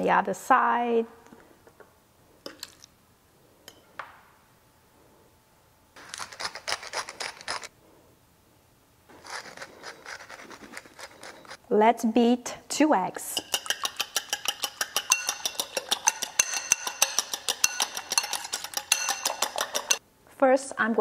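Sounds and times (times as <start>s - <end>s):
fork clinking on a plate: 13.4s - 20.0s
glass spice jar rattling: 13.4s - 20.0s.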